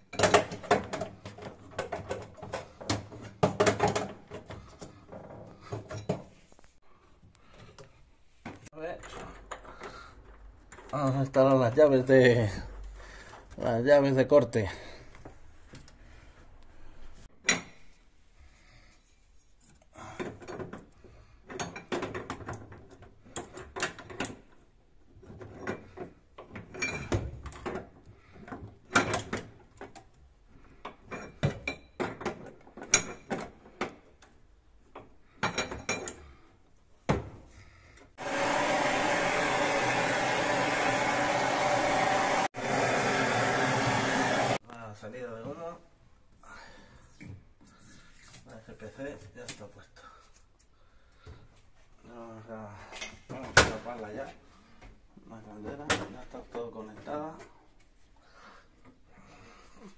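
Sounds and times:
gas blowtorch hissing: 0:38.2 - 0:44.6.

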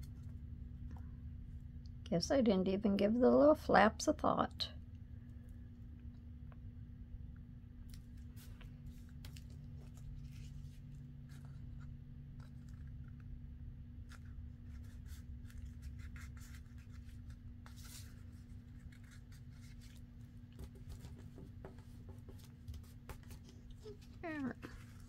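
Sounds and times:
paper rustling and crinkling: 0:08.0 - 0:13.3, 0:14.0 - 0:25.0.

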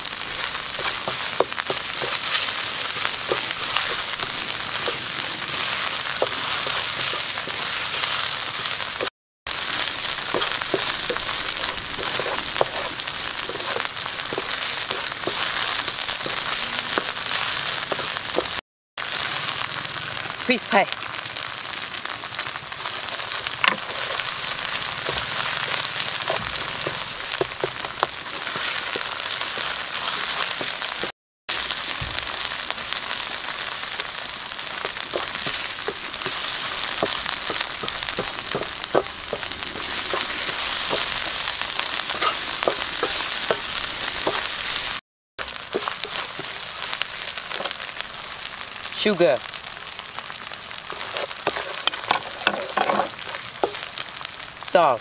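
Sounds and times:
paste sizzling in a wok: 0:00.0 - 0:55.0
spatula scraping a wok: 0:00.2 - 0:09.1, 0:10.2 - 0:18.6, 0:23.0 - 0:31.1, 0:34.7 - 0:45.0, 0:50.9 - 0:53.9.

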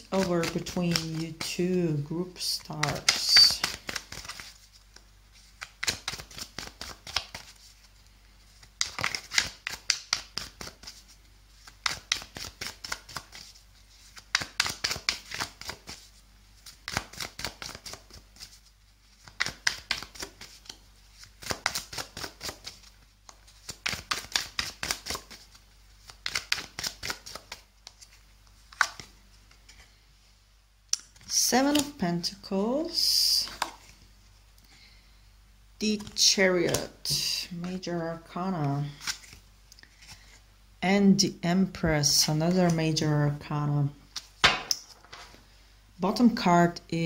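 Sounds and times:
cards being shuffled: 0:00.0 - 0:01.7, 0:02.3 - 0:29.9, 0:31.0 - 0:32.0, 0:33.3 - 0:34.0, 0:35.9 - 0:37.9, 0:38.6 - 0:40.4, 0:44.1 - 0:45.4.

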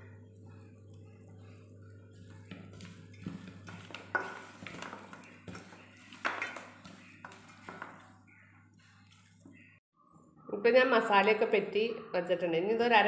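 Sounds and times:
low hum: 0:00.0 - 0:05.8.

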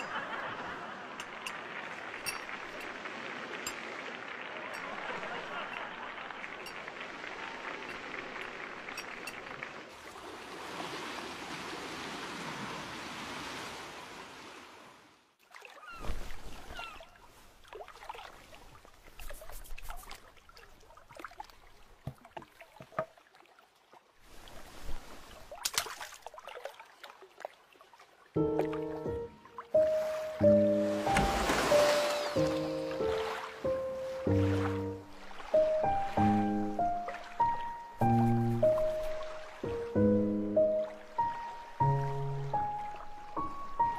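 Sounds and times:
water rushing: 0:00.0 - 0:23.4, 0:24.2 - 0:43.9
knocks drips and splashes: 0:01.0 - 0:11.3, 0:15.4 - 0:17.0, 0:17.6 - 0:43.9
music: 0:28.4 - 0:43.9.

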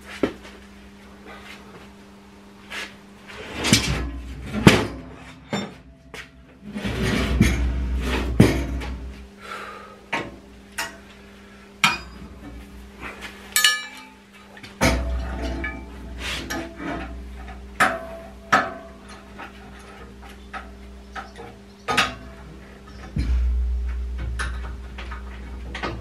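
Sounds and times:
steel clanking on steel: 0:03.5 - 0:09.2, 0:11.8 - 0:12.6, 0:13.6 - 0:26.0
bright metallic ring: 0:13.6 - 0:14.2.

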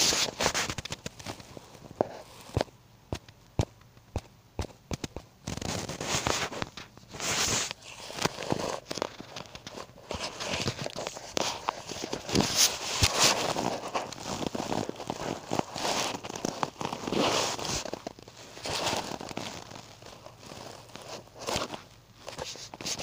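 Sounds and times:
microphone rubbing on fabric: 0:00.0 - 0:02.7, 0:04.6 - 0:08.9.

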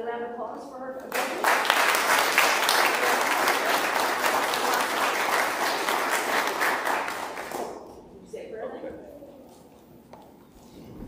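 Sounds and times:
congregation applauding: 0:01.1 - 0:08.0.

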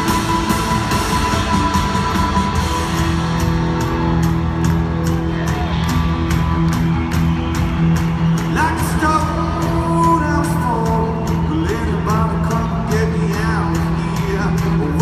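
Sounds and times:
electric guitars: 0:00.0 - 0:15.0
steady drum beat: 0:00.0 - 0:15.0
man singing: 0:08.5 - 0:15.0.

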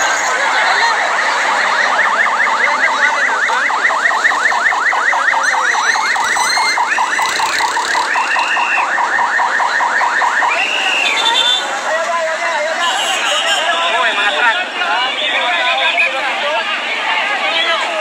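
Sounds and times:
street noise: 0:00.0 - 0:18.0
electronic alarm sweeping: 0:05.3 - 0:09.1.

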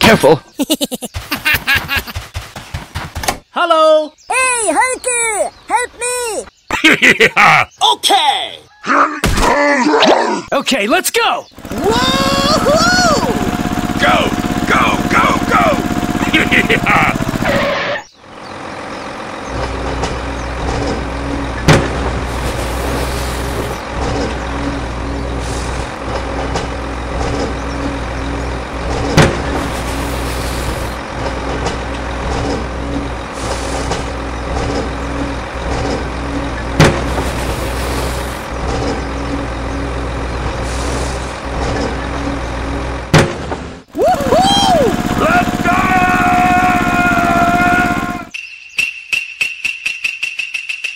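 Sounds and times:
heavy vehicle engine humming: 0:11.5 - 0:48.3.

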